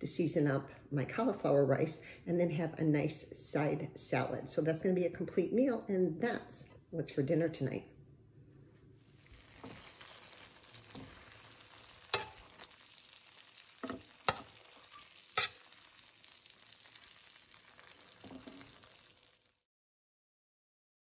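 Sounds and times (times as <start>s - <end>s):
meat and vegetables sizzling in pan: 9.0s - 19.6s
metal spatula clicking on pan: 12.1s - 12.6s, 13.8s - 15.7s.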